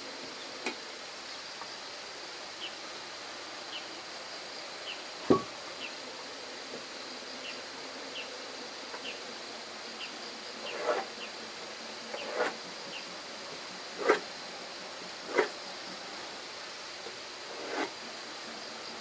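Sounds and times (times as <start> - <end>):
high insect drone: 0.0 - 19.0
dull wooden knocks: 5.3 - 5.5.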